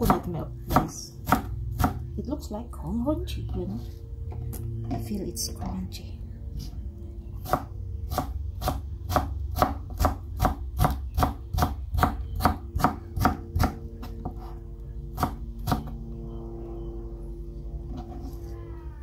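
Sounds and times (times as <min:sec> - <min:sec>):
knife chopping on plastic board: 0:00.0 - 0:02.0, 0:07.4 - 0:14.5.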